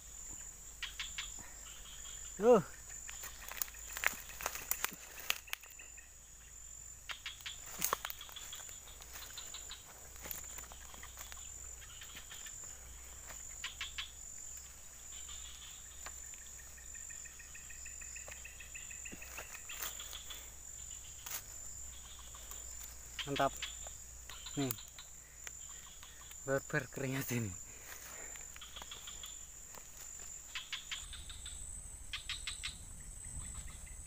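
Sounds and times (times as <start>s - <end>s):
high-pitched insect chorus: 0.0s - 34.0s
rustling: 3.0s - 5.8s.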